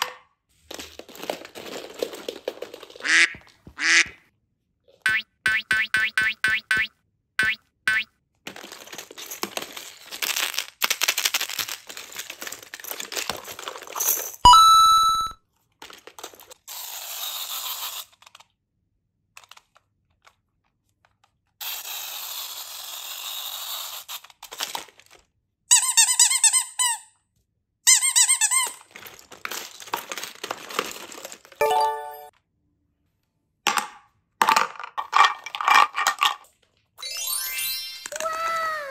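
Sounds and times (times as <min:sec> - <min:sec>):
rubber toys rustling and squeezed: 0:00.5 - 0:04.2, 0:08.4 - 0:18.6, 0:21.0 - 0:27.0, 0:27.9 - 0:32.3
brief pitched toy tone: 0:14.5 - 0:15.4, 0:31.6 - 0:32.3
toy squeaks: 0:14.5 - 0:15.4, 0:25.7 - 0:27.1, 0:27.9 - 0:28.8.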